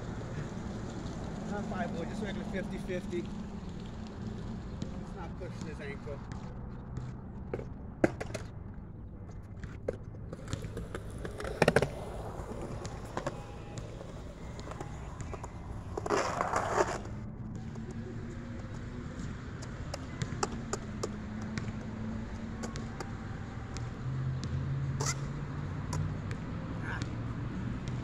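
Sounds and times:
skateboard rolling rumble: 0.0s - 5.6s, 9.1s - 23.4s
skateboard clacks: 6.4s - 8.5s, 9.5s - 23.3s
skateboard scraping: 9.8s - 17.2s, 25.0s - 25.3s.

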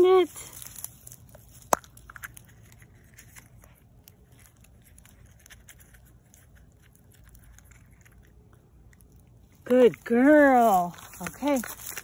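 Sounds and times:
dog chewing: 1.2s - 9.7s.

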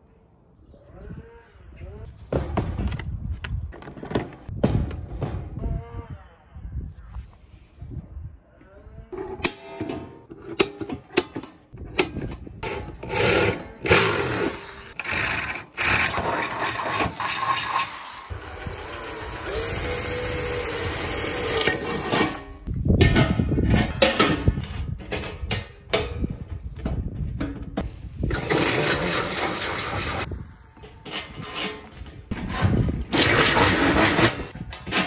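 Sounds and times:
electric drill boring metal: 18.3s - 21.8s
metal clattering and knocking: 22.9s - 27.9s.

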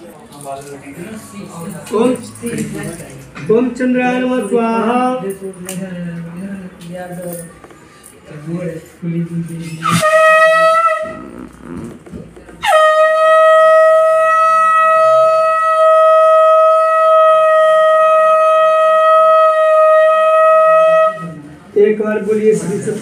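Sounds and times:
conch shell blast: 9.8s - 11.8s.

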